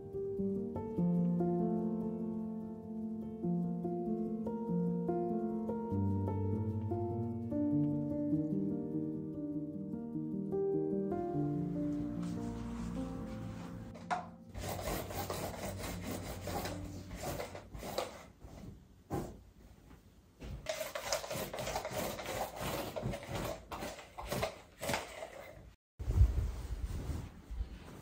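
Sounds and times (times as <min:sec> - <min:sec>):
scrubbing against hard surface: 0:12.2 - 0:18.4, 0:20.6 - 0:25.4.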